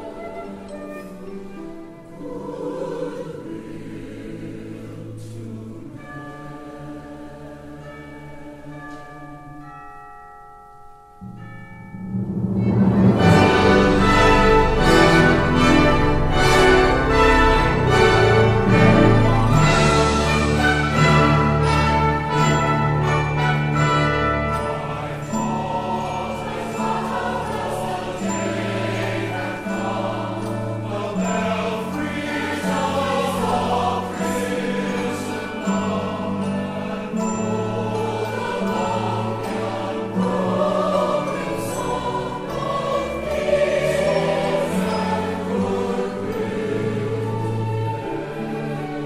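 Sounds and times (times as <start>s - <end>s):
mixed choir singing: 0.0s - 9.0s, 12.6s - 49.0s
orchestra playing accented chords: 11.8s - 49.0s.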